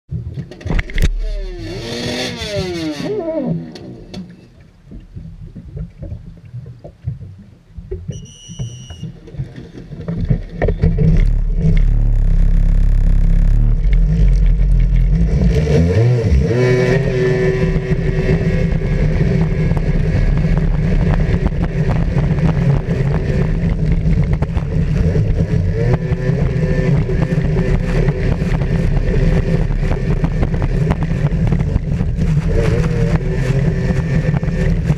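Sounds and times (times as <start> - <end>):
jet ski engine revving: 0.9 - 4.2, 10.8 - 34.9
short high beep: 8.1 - 9.1
water rushing: 9.1 - 34.9.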